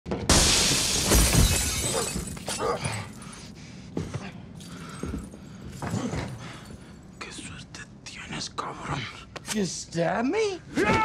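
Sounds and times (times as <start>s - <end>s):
glass shattering: 0.3s - 3.2s.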